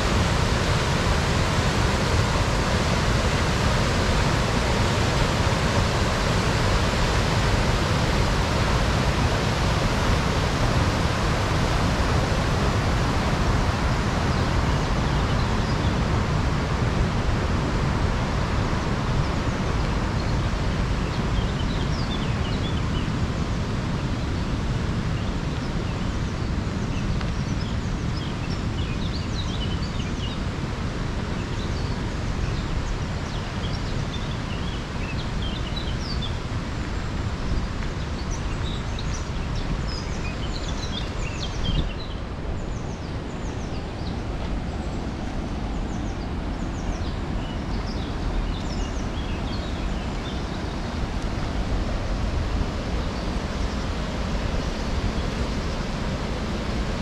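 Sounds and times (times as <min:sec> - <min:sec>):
steady rushing noise: 0:00.0 - 0:57.0
small birds chirping: 0:31.4 - 0:56.8.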